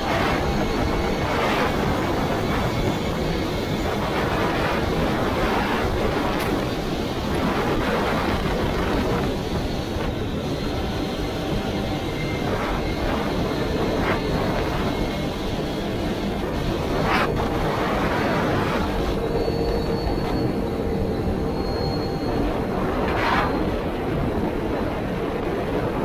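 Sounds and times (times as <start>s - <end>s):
wind noise on microphone: 0.0s - 26.0s.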